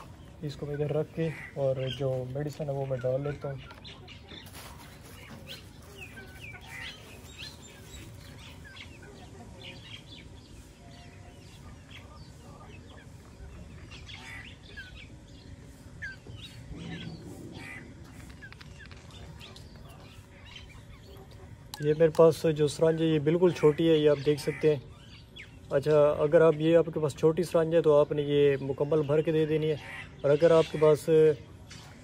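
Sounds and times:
chickens clucking: 0.0s - 25.4s
birds chirping: 0.0s - 32.0s.

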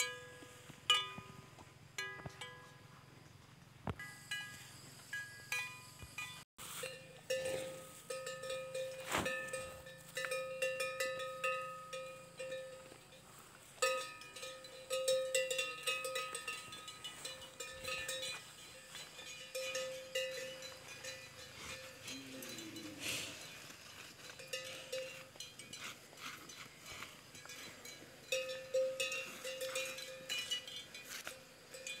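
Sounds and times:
animal bells clanking: 0.0s - 32.0s.

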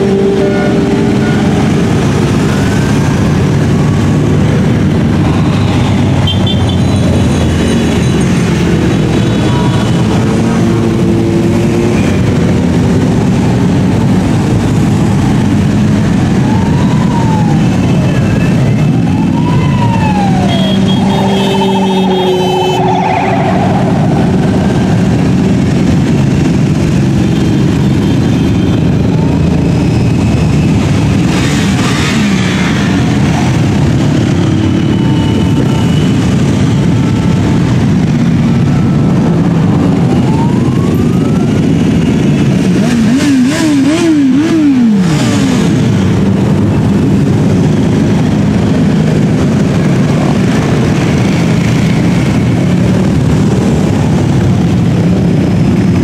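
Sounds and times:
police siren wailing: 0.0s - 11.1s, 16.0s - 31.1s, 32.7s - 42.8s
motorcycle engines rumbling: 0.0s - 56.0s.

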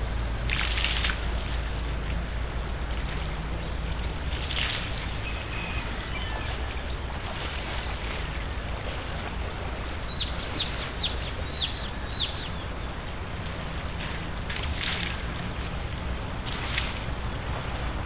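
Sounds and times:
shallow river flowing over stones: 0.0s - 18.0s.

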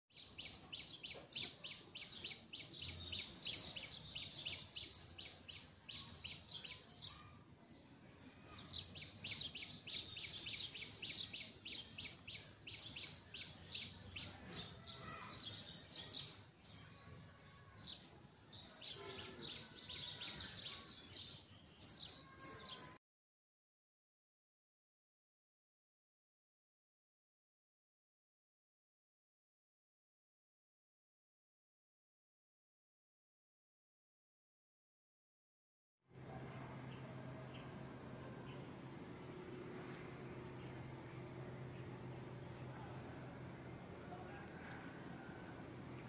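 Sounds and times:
small birds chirping: 0.1s - 23.0s, 36.2s - 46.0s.

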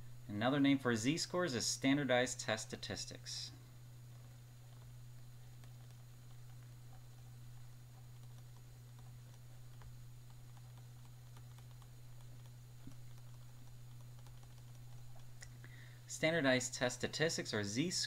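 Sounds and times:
low electrical hum: 0.0s - 18.0s
stylus tapping on pen tablet: 5.6s - 15.4s.

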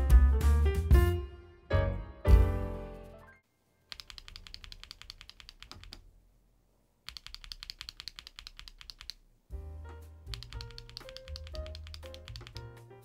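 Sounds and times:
background music: 0.0s - 3.5s, 9.5s - 13.0s
mechanical keyboard clicking: 3.9s - 6.0s, 7.1s - 9.2s, 10.3s - 12.8s.

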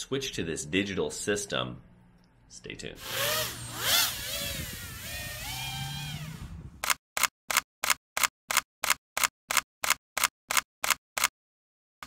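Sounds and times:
quadcopter motors whining: 3.0s - 6.8s.

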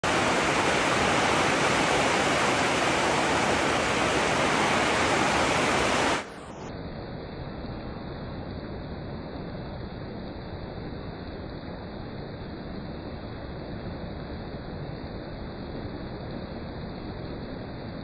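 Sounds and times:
heavy rain falling: 0.0s - 6.4s
dull steady noise: 0.0s - 18.0s.

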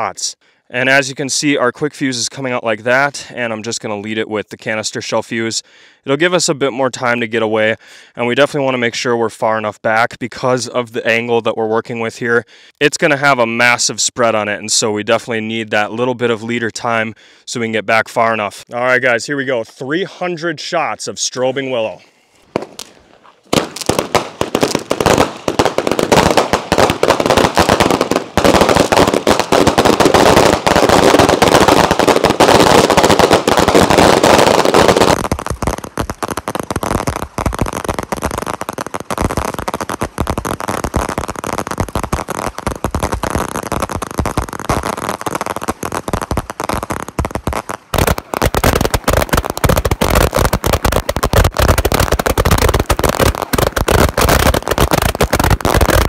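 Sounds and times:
fireworks barrage firing: 22.5s - 56.0s.

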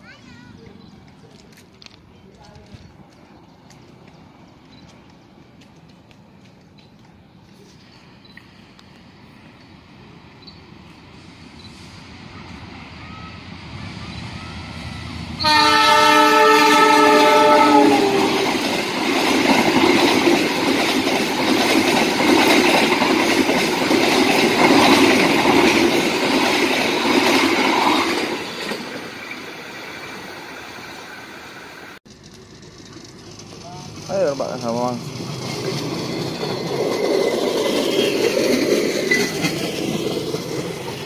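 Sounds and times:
train wheels on rails: 0.0s - 41.0s
train horn blast: 15.4s - 18.6s.

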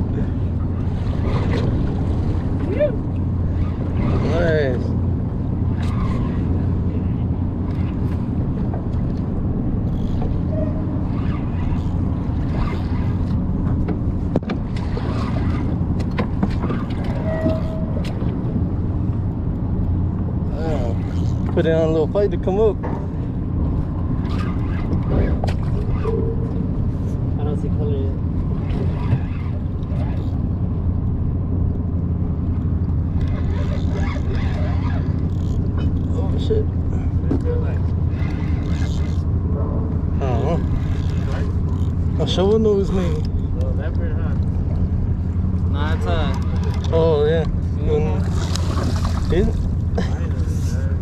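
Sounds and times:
outboard motor humming: 0.0s - 51.0s
water around boat: 0.0s - 51.0s
wind: 0.0s - 51.0s
outboard motor idling: 32.1s - 51.0s.

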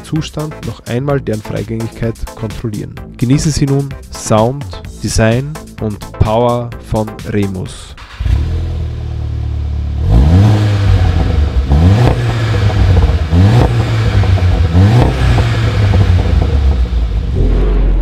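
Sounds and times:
car engine idling: 8.0s - 17.4s
car engine revving: 8.0s - 18.0s.

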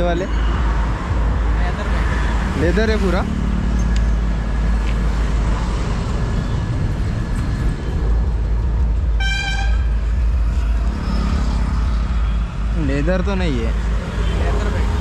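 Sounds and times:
road traffic rumble: 0.0s - 15.0s
vehicle horn toot: 9.2s - 9.9s.

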